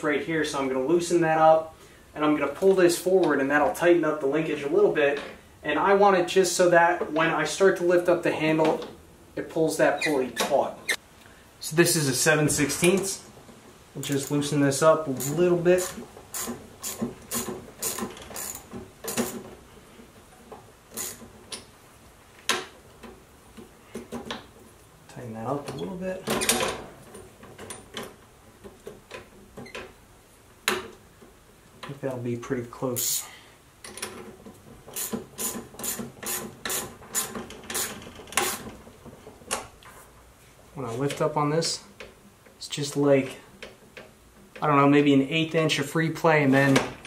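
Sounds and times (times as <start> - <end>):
ratchet wrench clicking: 15.2 - 19.4.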